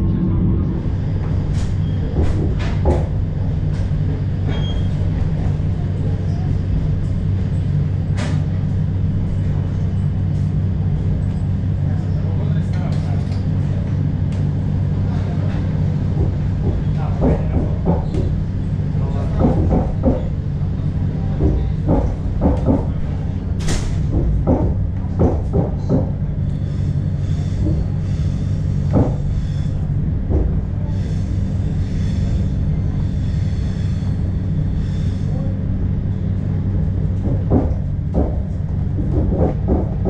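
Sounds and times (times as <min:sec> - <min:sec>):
train carriage rumble and hum: 0:00.0 - 0:40.0.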